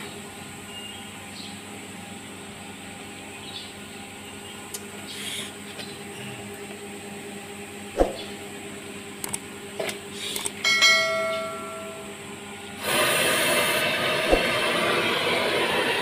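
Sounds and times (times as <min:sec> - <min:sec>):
steady hum: 0:00.0 - 0:16.0
bell chime: 0:10.6 - 0:12.1.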